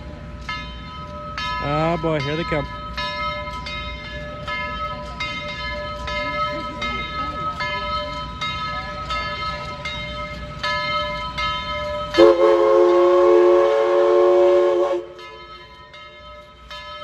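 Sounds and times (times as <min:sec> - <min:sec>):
steam locomotive whistle: 0:12.1 - 0:15.4.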